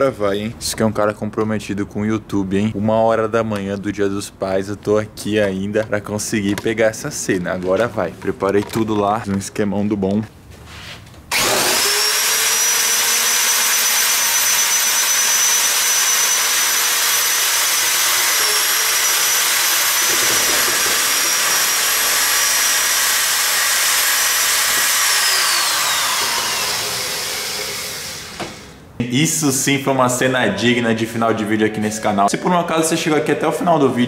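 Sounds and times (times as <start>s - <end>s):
electric drill whining: 11.3s - 28.8s.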